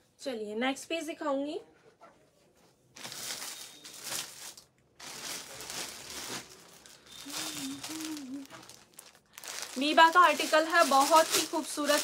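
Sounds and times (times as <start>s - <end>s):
plastic packaging crinkling: 3.0s - 12.0s
person humming: 7.3s - 8.6s.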